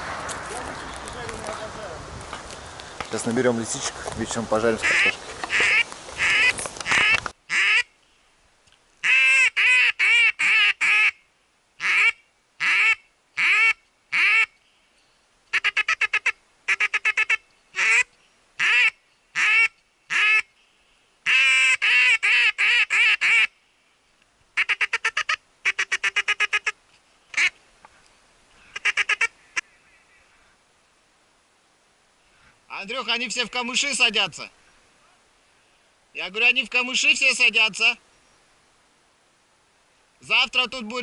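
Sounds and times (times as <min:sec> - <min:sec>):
duck quacking: 0:04.8 - 0:07.9, 0:09.0 - 0:11.2, 0:11.8 - 0:14.5, 0:15.5 - 0:20.5, 0:21.3 - 0:23.5, 0:24.6 - 0:27.6, 0:28.6 - 0:30.0.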